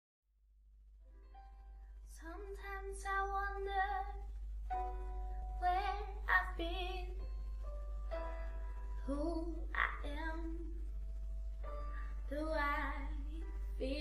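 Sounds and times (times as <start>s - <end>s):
low electrical hum: 0.5s - 14.0s
woman singing a ballad: 2.1s - 4.2s, 5.6s - 7.2s, 9.0s - 10.7s, 12.3s - 14.0s.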